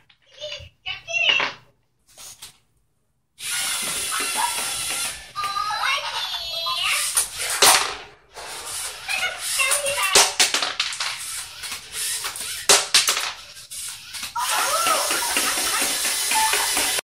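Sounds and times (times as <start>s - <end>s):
motor whir: 3.4s - 5.4s, 8.4s - 10.1s, 11.0s - 12.7s, 13.3s - 17.0s.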